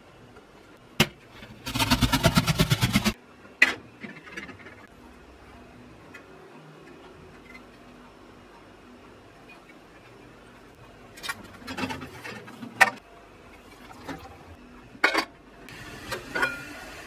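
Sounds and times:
onion grated on metal grater: 0:01.5 - 0:03.2.

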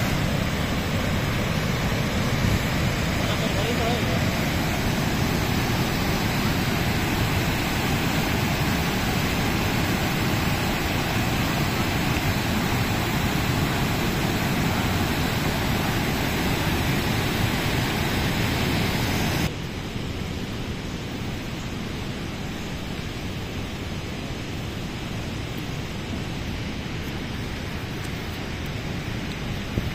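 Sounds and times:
water rushing over rocks: 0:00.0 - 0:19.6.

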